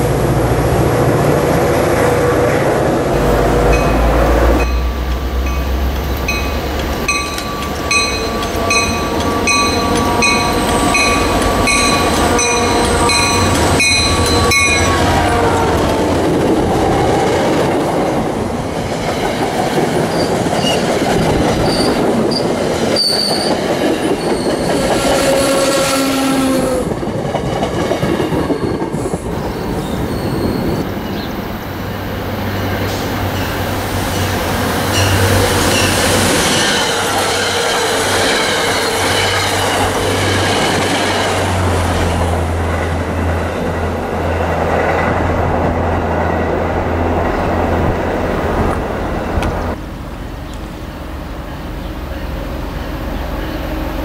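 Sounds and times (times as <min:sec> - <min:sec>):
distant train drone: 0:00.0 - 0:54.0
high wheel squeal: 0:06.3 - 0:15.4, 0:21.6 - 0:26.4, 0:29.4 - 0:31.3.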